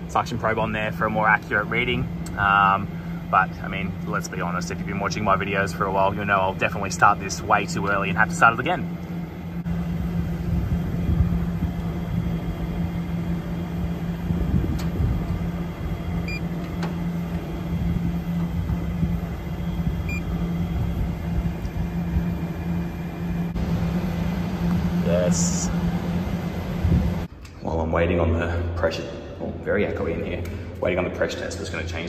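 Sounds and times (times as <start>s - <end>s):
low mechanical hum: 0.0s - 32.0s
wind rumbling on microphone: 10.0s - 13.0s, 13.9s - 16.1s, 17.7s - 22.5s, 26.7s - 27.3s.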